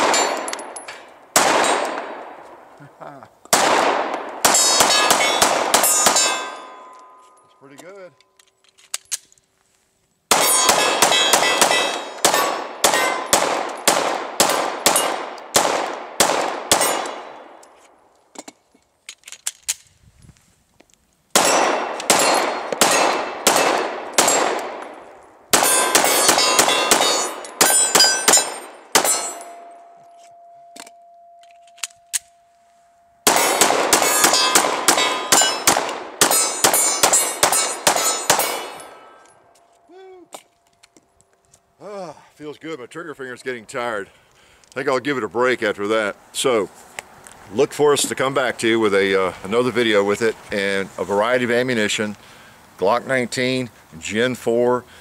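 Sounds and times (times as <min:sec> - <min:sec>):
steel targets clanging: 0:00.0 - 0:01.1, 0:04.5 - 0:07.8, 0:10.4 - 0:13.4, 0:25.6 - 0:31.9, 0:33.3 - 0:39.4
pistol shots: 0:00.0 - 0:02.4, 0:03.5 - 0:06.9, 0:10.3 - 0:17.6, 0:21.3 - 0:29.7, 0:33.2 - 0:39.2.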